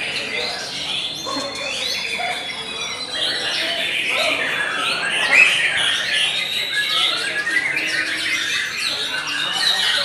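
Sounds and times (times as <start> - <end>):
bird singing chirps and trills: 0.0 - 10.0.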